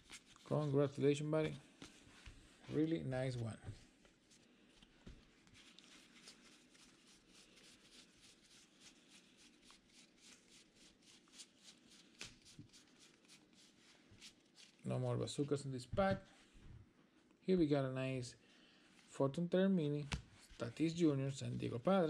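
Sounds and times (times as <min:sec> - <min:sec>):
trading cards flicking through hands: 0:11.3 - 0:13.4.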